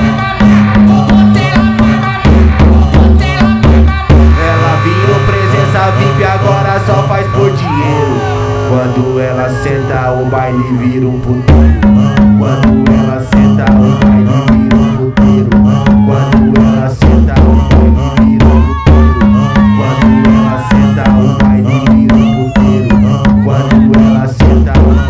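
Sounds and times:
dance music beat: 0.0s - 25.0s
repeating bass line: 0.0s - 25.0s
wavering melodic line: 4.1s - 13.2s.

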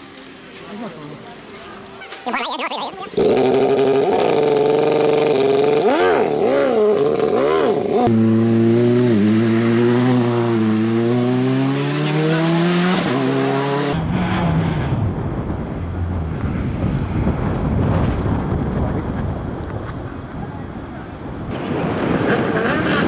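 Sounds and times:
car engine revving: 3.2s - 19.2s.

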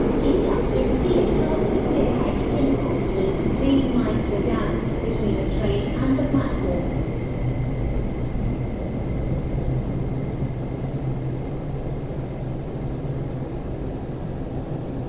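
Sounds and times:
train rumbling and humming: 0.0s - 15.0s.

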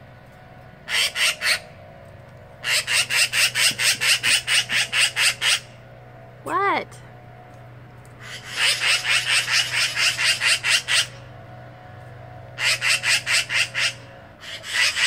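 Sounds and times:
magpie harsh chatter call: 0.9s - 1.8s, 2.6s - 5.8s, 8.2s - 11.3s, 12.6s - 15.0s.

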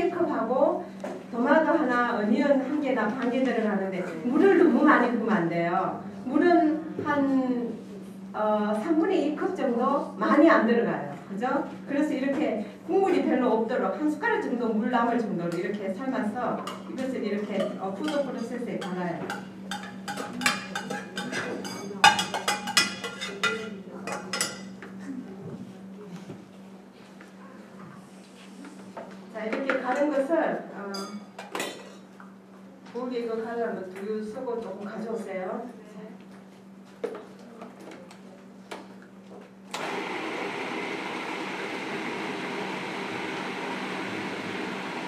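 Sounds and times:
food processor motor grinding: 39.7s - 45.0s.

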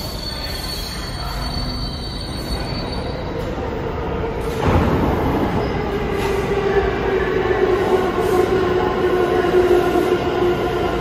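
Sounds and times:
high wheel squeal: 0.0s - 3.4s
subway train rumbling on rails: 0.0s - 11.0s.

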